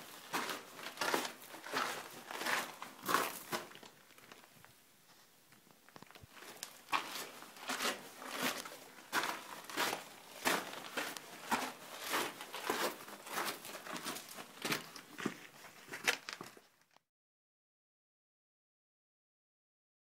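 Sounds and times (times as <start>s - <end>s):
footsteps crunching on gravel: 0.0s - 4.5s, 6.2s - 16.6s.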